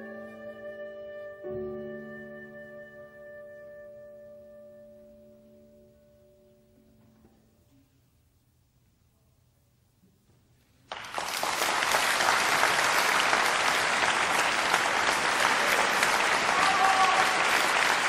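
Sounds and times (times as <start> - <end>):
audience applause: 10.9 - 18.0.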